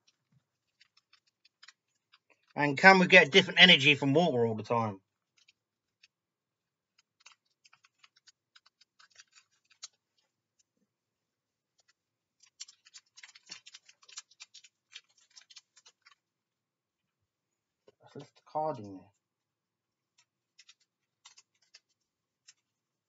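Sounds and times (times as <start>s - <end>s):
foil wrapper crinkling: 7.2s - 10.0s, 11.8s - 16.2s.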